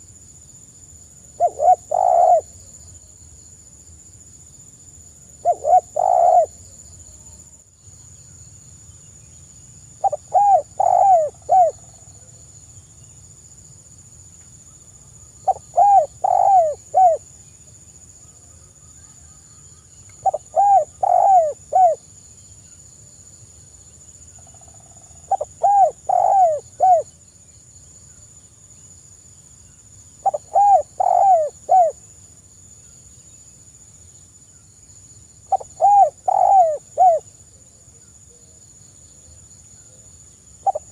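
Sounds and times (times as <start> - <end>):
dove cooing softly: 1.4 - 2.9, 5.4 - 7.3, 10.0 - 12.4, 15.4 - 17.4, 18.6 - 22.0, 24.3 - 27.2, 30.2 - 32.0, 35.5 - 40.9.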